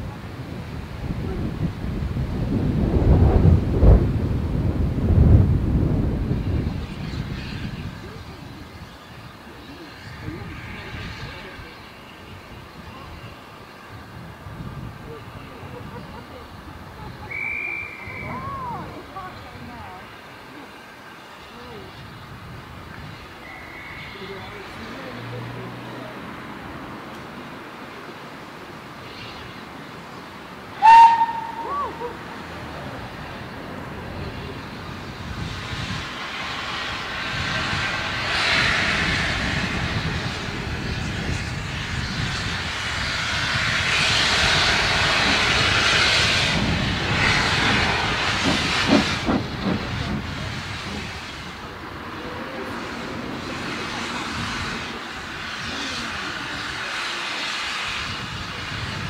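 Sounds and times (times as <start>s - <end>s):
steady steam hiss: 0.0s - 59.0s
steam locomotive whistle: 17.3s - 18.7s, 23.4s - 24.5s, 30.8s - 32.1s.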